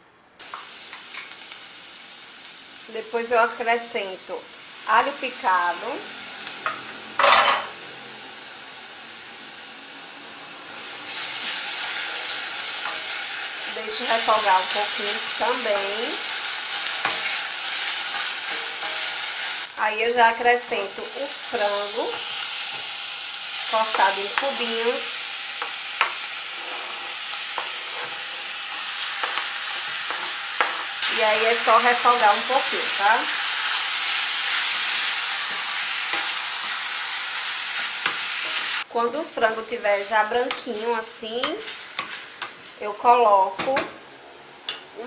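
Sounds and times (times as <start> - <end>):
onion sizzling in oil: 0.4 - 45.0
wooden spoon stirring pan: 39.4 - 42.7.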